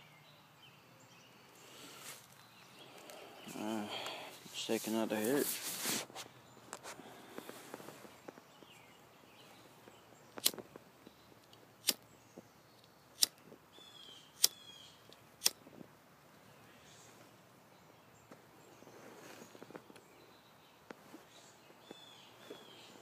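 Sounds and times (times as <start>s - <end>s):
bird chirping: 0.0s - 15.6s, 16.3s - 23.0s
lighter clicking: 13.2s - 13.4s, 14.4s - 14.6s.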